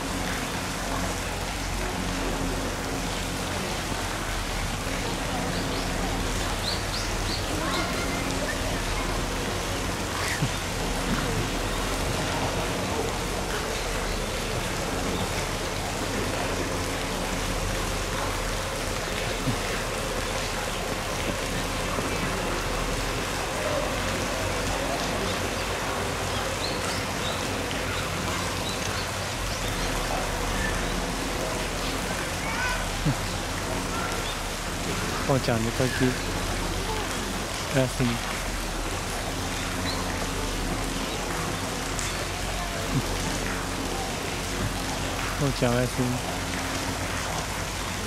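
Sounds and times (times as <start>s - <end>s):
low hum: 0.0s - 45.4s
rain-like rushing noise: 0.0s - 48.0s.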